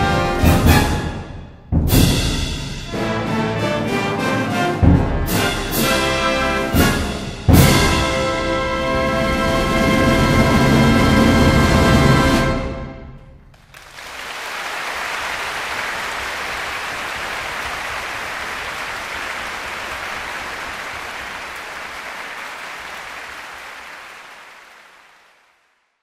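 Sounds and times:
music track: 0.0 - 13.4
applause: 13.5 - 26.0.

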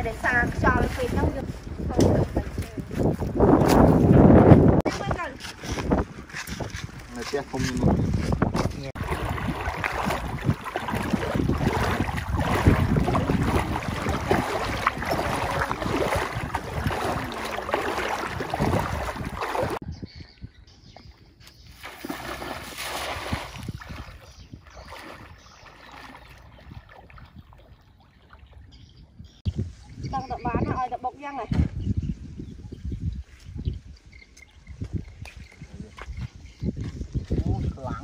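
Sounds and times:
wind noise: 0.0 - 27.8, 28.6 - 38.0
faint water noise: 8.9 - 19.8, 21.8 - 29.1
legs wading through water: 9.0 - 19.8, 21.8 - 28.8.

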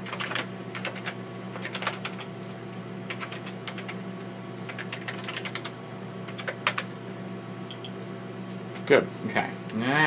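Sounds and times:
computer humming: 0.0 - 10.0
keyboard keys clacking: 4.7 - 5.7.

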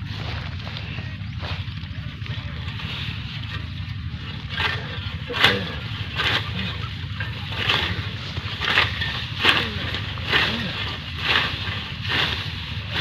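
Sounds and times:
low rumble: 0.0 - 13.0
blade swishing through grass: 4.3 - 13.0.

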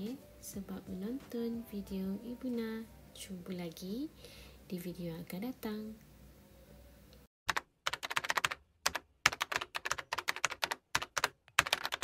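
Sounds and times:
keyboard typing clicks: 7.5 - 12.0.

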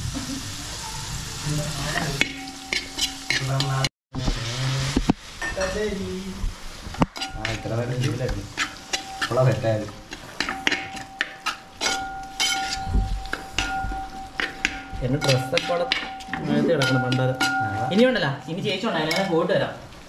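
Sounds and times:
food sizzling in a pan: 0.0 - 20.0
metal spoon knocking pan: 2.0 - 3.9, 7.0 - 19.4.

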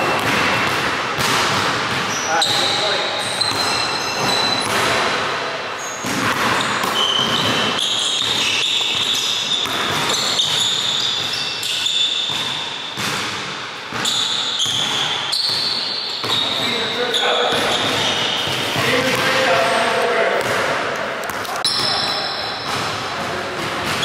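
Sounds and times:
sneakers squeaking: 0.0 - 24.0
basketball bouncing on wooden floor: 6.1 - 16.6.

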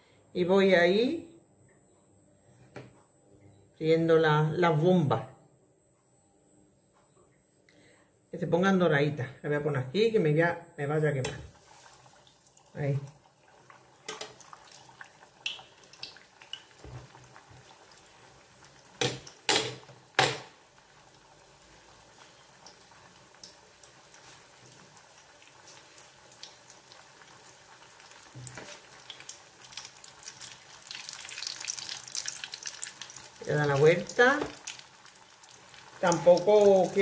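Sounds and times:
food frying in oil: 11.5 - 37.0.

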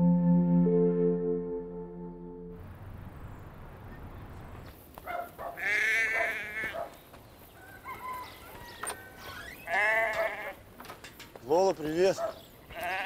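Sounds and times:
sheep bleating: 5.6 - 6.8, 9.7 - 10.6, 12.7 - 13.0.

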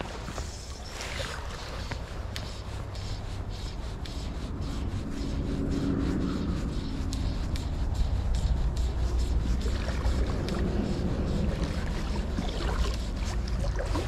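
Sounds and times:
clothing rubbing: 0.0 - 6.9
low steady hum: 0.0 - 14.0
faint regular ticks: 1.8 - 13.6
low rumble: 1.8 - 14.0.

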